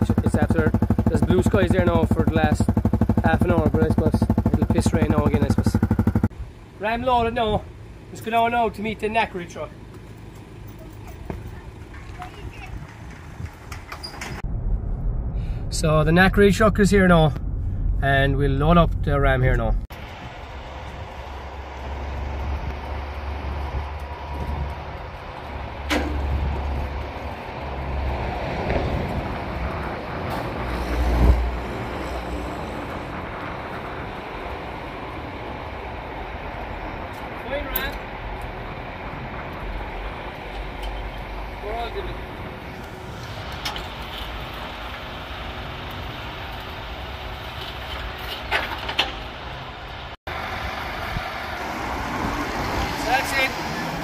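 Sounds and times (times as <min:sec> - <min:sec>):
lorry engine running: 0:00.0 - 0:06.8
truck engine rumbling: 0:00.0 - 0:54.0
sharp metallic clank: 0:25.9 - 0:26.4.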